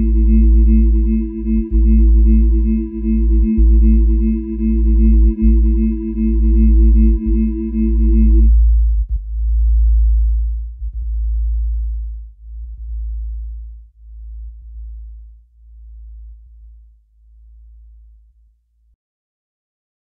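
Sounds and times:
synth chord tones: 0.0s - 8.5s
deep sub-bass drone: 0.0s - 18.2s.

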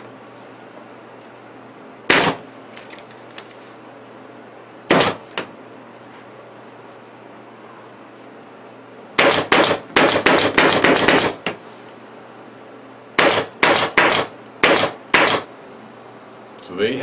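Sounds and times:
pneumatic staple gun firing: 2.1s - 2.4s, 4.9s - 5.4s, 9.2s - 11.5s, 13.2s - 15.5s.

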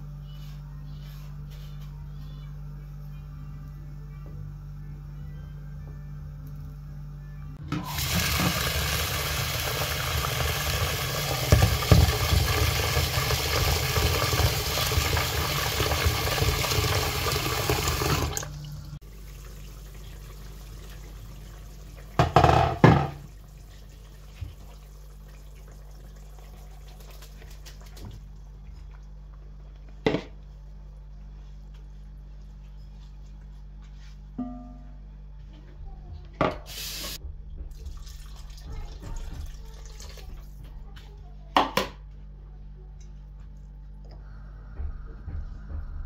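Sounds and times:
low steady hum: 0.0s - 46.0s
tap water running into bowl: 7.8s - 28.2s, 37.1s - 40.5s.

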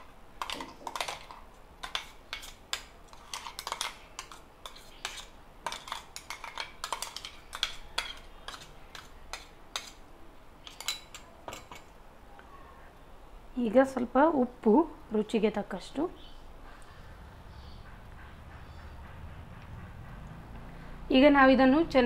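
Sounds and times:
metal spoon clinking and scraping: 0.0s - 10.0s, 10.6s - 12.0s.

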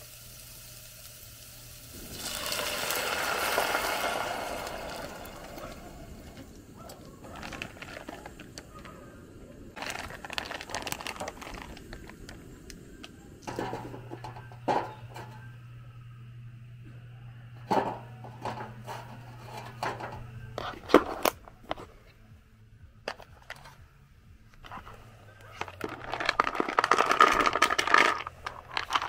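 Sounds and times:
loud hissing burst: 0.0s - 16.8s
steady low hum: 0.0s - 29.0s
noodles rustling and clicking: 5.6s - 9.1s, 9.8s - 15.4s, 24.5s - 29.0s.

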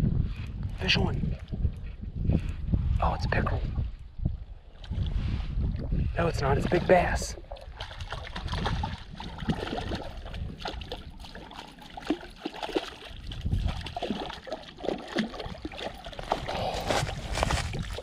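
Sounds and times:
fish splashing in water: 7.6s - 16.8s.

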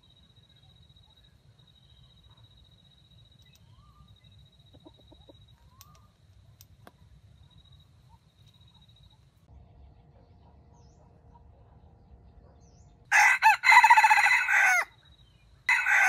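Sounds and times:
chickens clucking: 4.6s - 6.0s.

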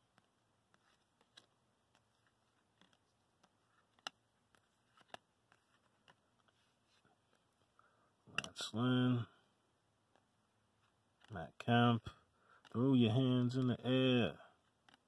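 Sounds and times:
cards flipping clicks: 0.1s - 6.5s.

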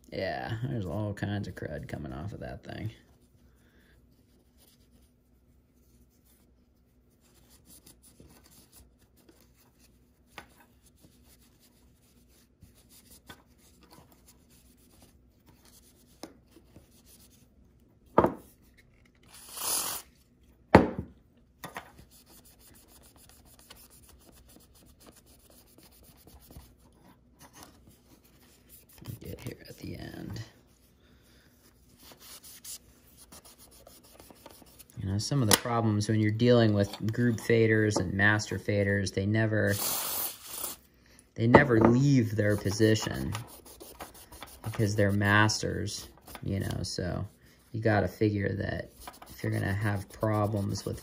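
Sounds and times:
cotton pad rubbing on metal: 48.8s - 51.0s.

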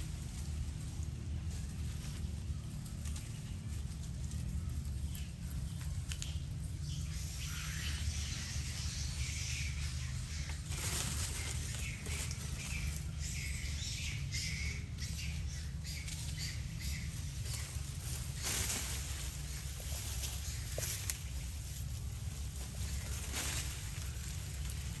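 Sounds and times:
rustling and crackling: 0.0s - 7.2s, 9.9s - 13.2s, 16.0s - 25.0s
low steady rumble: 0.0s - 25.0s.

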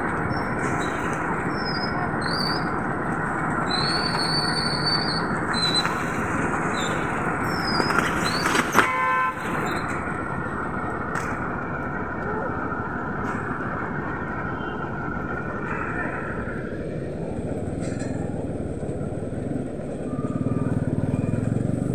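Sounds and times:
road traffic noise: 0.0s - 21.9s
vehicle horn honk: 8.8s - 9.5s.

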